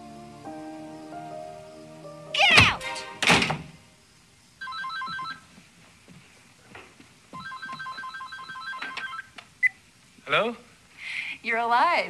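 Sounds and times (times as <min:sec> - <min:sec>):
telephone ringing: 0:04.6 - 0:05.4, 0:07.4 - 0:09.3.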